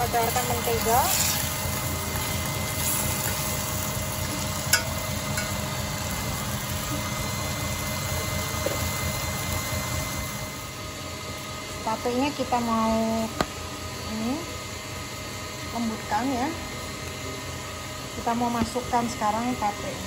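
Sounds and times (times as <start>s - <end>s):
low mechanical hum: 0.0s - 20.0s.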